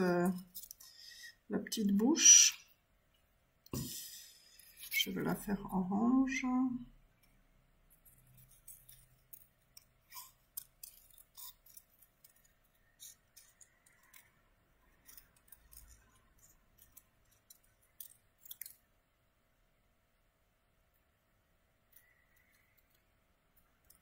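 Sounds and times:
scissors snipping paper: 8.3 - 18.9.

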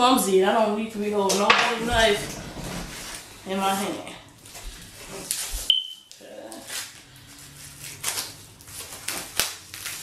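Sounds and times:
plastic wrapping crinkling: 2.0 - 10.0.

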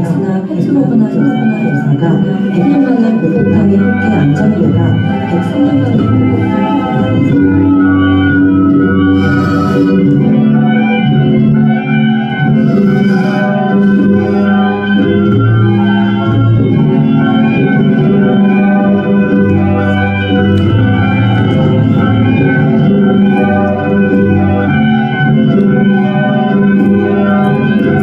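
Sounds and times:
organ-like electronic drones: 0.0 - 28.0.

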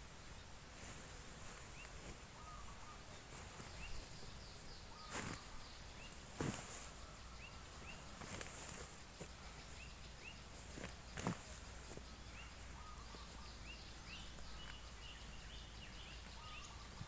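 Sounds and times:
faint insect hiss: 0.0 - 17.0
small birds chirping: 0.0 - 17.0
thumps with leaf rustling: 5.0 - 9.8, 10.5 - 12.1.

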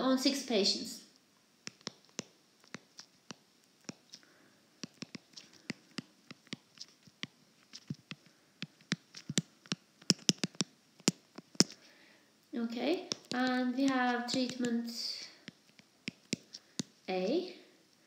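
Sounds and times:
stylus tapping on glass screen: 7.7 - 11.8.

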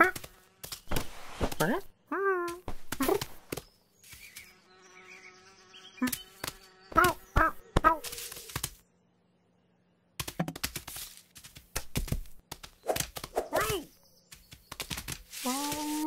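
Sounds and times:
insect buzzing: 0.0 - 1.9, 4.0 - 8.7
scuffling knocks: 0.0 - 1.9, 10.2 - 16.0
grass rustling: 7.9 - 8.8, 14.8 - 16.0.

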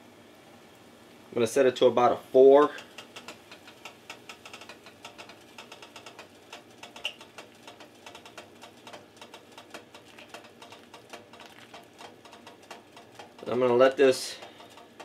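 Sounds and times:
ladle stirring pot: 2.8 - 13.5, 14.2 - 15.0
broth bubbling: 9.7 - 12.9.

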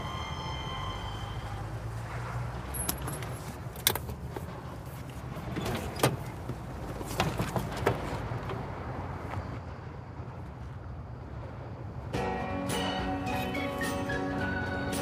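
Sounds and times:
clicks and rattles in a car: 2.8 - 8.7
car door opening: 5.4 - 8.2.

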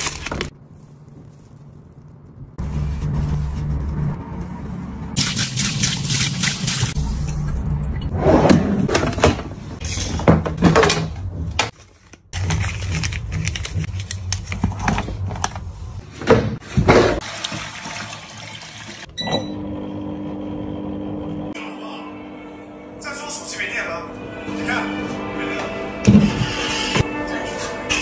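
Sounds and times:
water running from tap: 17.2 - 19.1
foot spa motor hum: 19.2 - 21.6.

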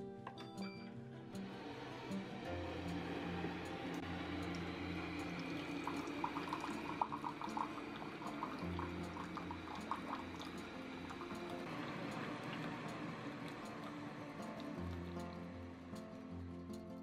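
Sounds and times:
water pouring into a ceramic mug: 3.4 - 15.3
water splashing and bubbling: 3.9 - 15.2.

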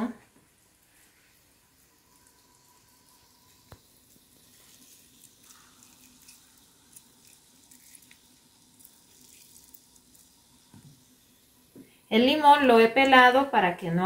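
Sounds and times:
wet squishing and crackling of lemon: 3.4 - 11.1.

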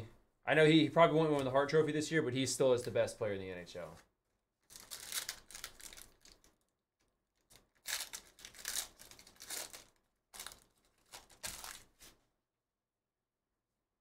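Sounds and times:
foil wrappers tearing and crinkling: 4.7 - 6.5, 7.4 - 12.1.

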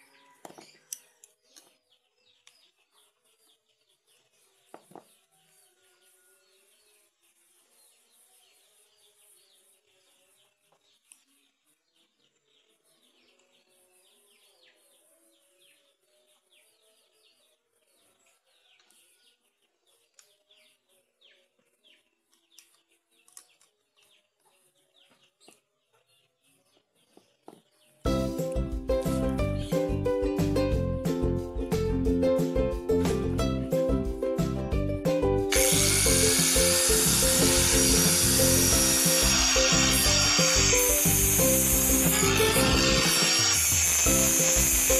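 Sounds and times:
faint bird chirping: 0.0 - 28.1.

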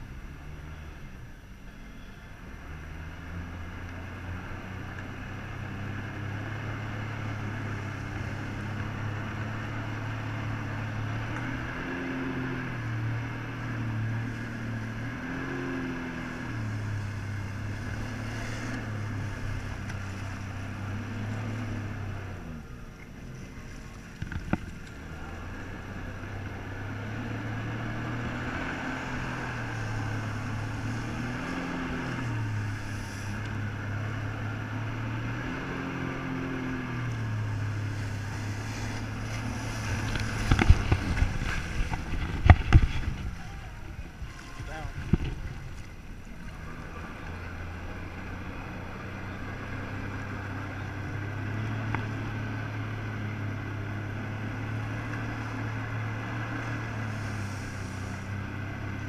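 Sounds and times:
jet ski engine revving: 0.0 - 59.0
water spray hissing: 57.0 - 58.4.

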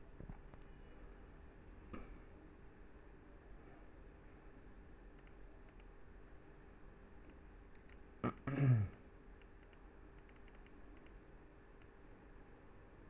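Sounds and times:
computer mouse and keyboard clicks: 5.1 - 6.0, 7.2 - 8.1, 9.4 - 11.2.

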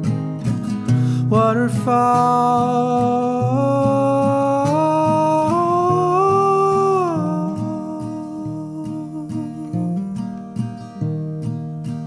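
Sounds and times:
acoustic guitar: 0.0 - 12.0.

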